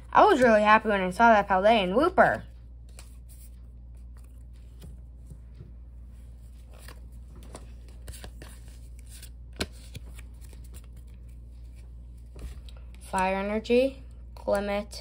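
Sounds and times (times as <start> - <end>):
steady low hum: 0.0 - 15.0
cards rustling and clicking: 2.8 - 5.6, 6.2 - 13.4.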